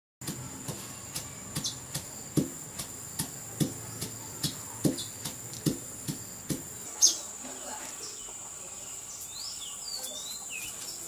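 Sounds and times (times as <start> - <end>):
regular knocking beat: 0.2 - 6.8.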